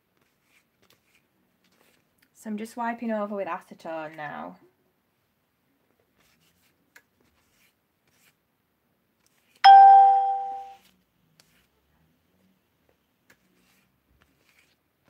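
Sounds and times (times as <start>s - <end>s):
bell-like chime: 9.7s - 10.8s.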